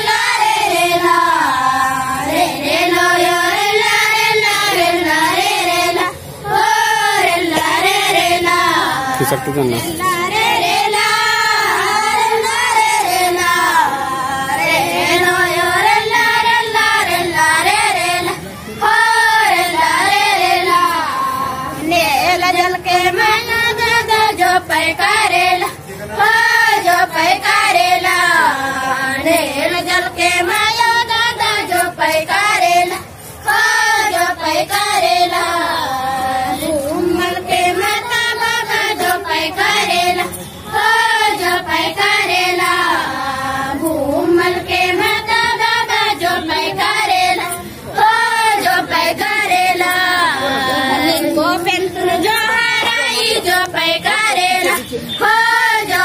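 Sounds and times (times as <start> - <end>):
girls singing together: 0.0 - 56.0.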